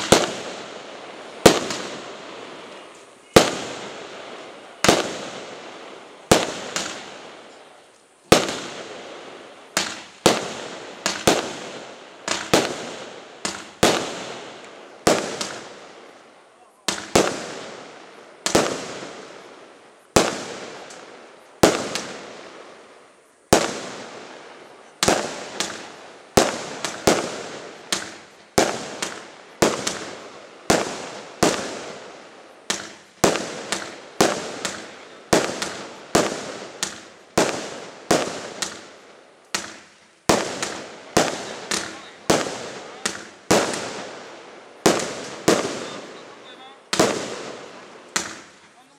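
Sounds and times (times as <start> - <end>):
fireworks bangs: 0.0 - 48.9.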